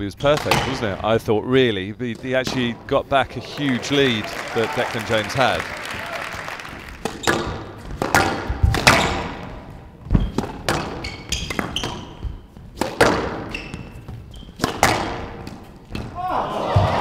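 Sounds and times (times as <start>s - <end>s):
squash ball hitting rackets and walls: 0.2s - 1.2s, 2.0s - 3.0s, 6.3s - 16.2s
shoes squeaking on court floor: 6.3s - 16.2s.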